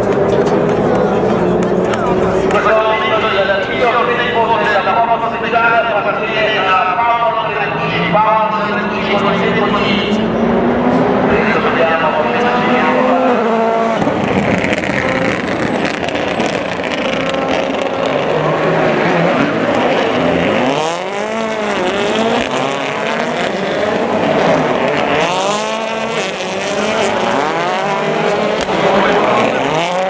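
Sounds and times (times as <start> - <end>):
rally car engines revving: 0.0 - 30.0
tyre squeal: 14.6 - 16.8.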